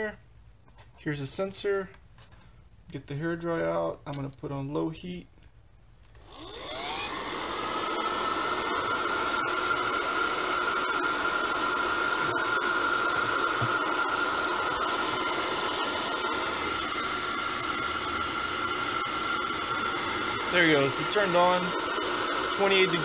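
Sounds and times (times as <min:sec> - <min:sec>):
hair dryer blowing with whine: 0:06.2 - 0:23.0.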